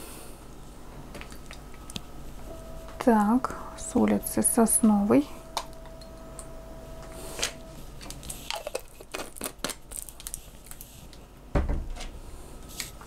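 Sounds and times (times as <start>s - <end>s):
thump on table: 11.6s - 11.9s.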